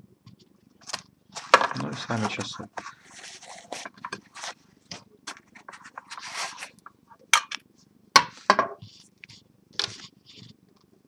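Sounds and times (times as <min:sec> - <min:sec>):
scraping and rustling of foam: 0:01.4 - 0:04.7, 0:05.4 - 0:06.8.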